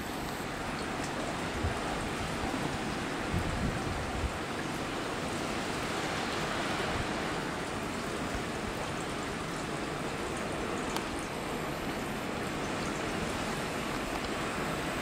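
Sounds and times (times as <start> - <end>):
heavy rain falling: 0.0 - 15.0
wind rumble on microphone: 1.4 - 4.6.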